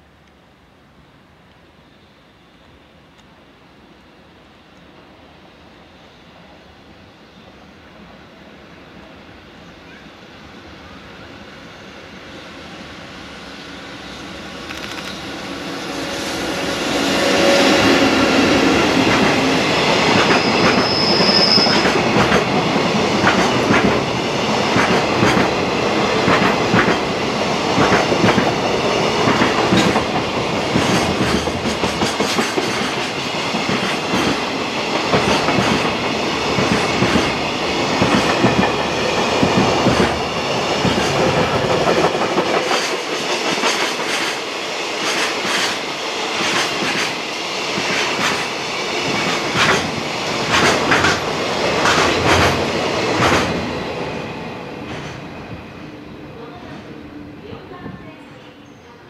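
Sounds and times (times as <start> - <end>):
freight train rumble: 4.0 - 59.0
high wheel squeal: 20.0 - 22.0.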